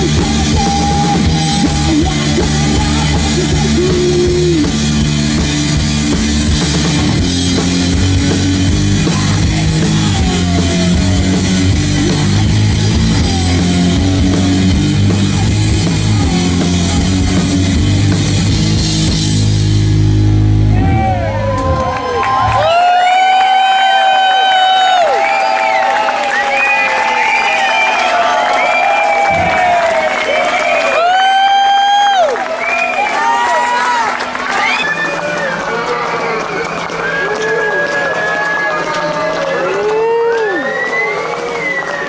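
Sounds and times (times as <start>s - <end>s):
live rock band playing: 0.0s - 22.5s
electric guitar: 0.0s - 23.1s
pounding drum kit: 0.0s - 23.2s, 24.9s - 35.0s
crowd whooping and cheering: 6.6s - 18.5s, 20.6s - 42.0s.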